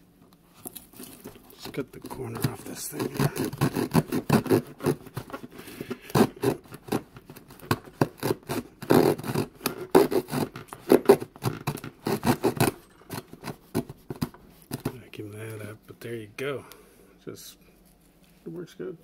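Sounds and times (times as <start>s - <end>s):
hand saw cutting wood: 1.7s - 14.8s.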